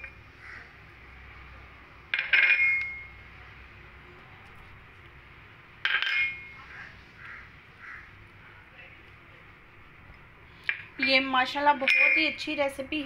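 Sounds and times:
dishes clinking: 2.1 - 3.2, 5.8 - 6.7, 10.7 - 12.4.

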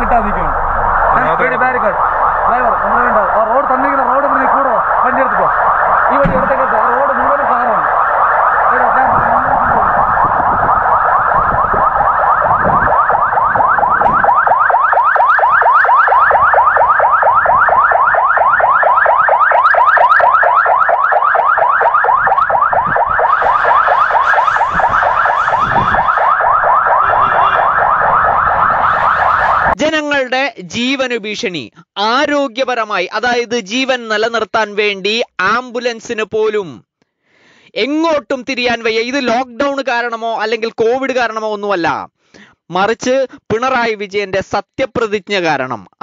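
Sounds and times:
ambulance siren: 0.0 - 29.8.

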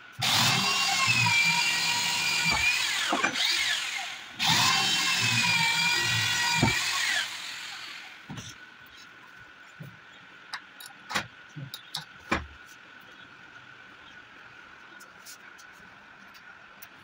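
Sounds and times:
electric drill boring into wood: 0.2 - 8.3.

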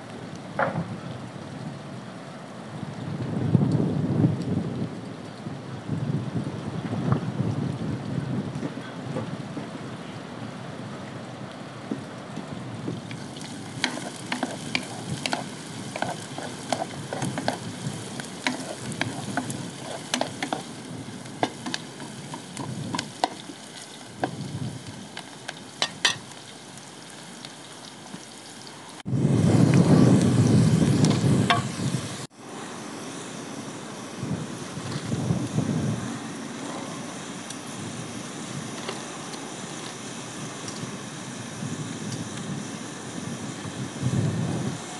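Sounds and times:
food sizzling: 12.8 - 44.9
rushing noise: 13.2 - 25.2.

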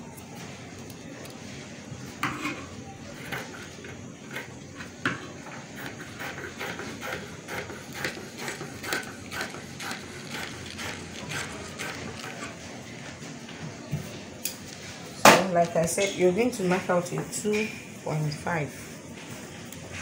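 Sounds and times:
shears snipping fabric: 5.8 - 12.6.

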